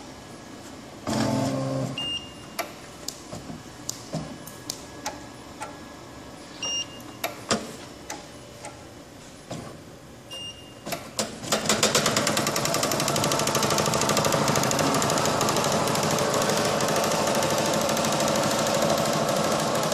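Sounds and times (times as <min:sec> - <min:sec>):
short beeps: 0:06.6 - 0:07.1, 0:10.3 - 0:10.8
punching machine clattering: 0:11.4 - 0:19.9.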